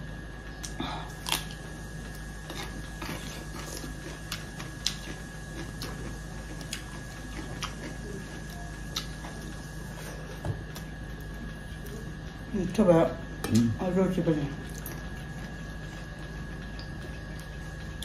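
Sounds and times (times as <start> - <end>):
faint steady hum: 0.0 - 18.0
chewing and lip smacks: 2.2 - 9.5.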